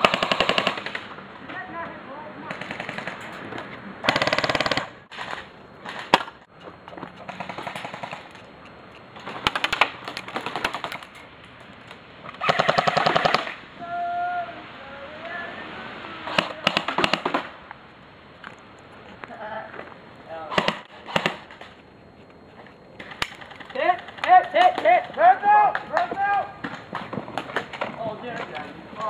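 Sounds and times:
airsoft rifles firing bursts: 0:00.0 - 0:01.1, 0:02.5 - 0:03.2, 0:04.0 - 0:06.3, 0:07.2 - 0:08.3, 0:09.2 - 0:11.1, 0:12.4 - 0:13.6, 0:16.3 - 0:17.5, 0:20.5 - 0:21.7.

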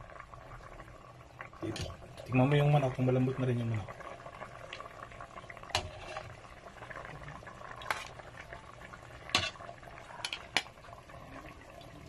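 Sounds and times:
sauce bubbling in a pot: 0:00.0 - 0:12.0
metal ladle clinking on pot: 0:09.3 - 0:09.6.

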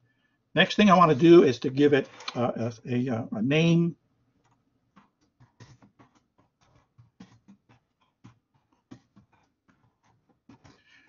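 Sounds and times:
faint keyboard typing: 0:04.4 - 0:11.0.

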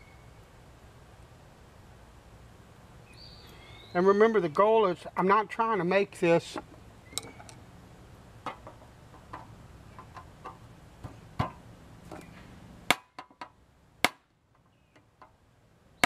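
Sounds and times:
sharp knocks: 0:08.4 - 0:12.2.

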